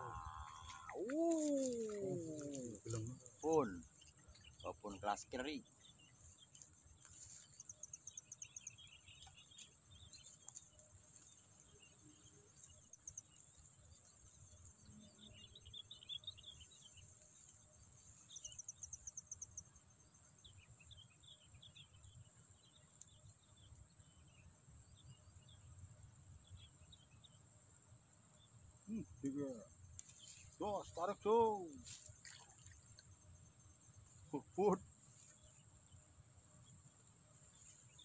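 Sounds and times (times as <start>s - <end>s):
birds chirping: 0.0s - 6.5s
insects droning: 0.0s - 38.0s.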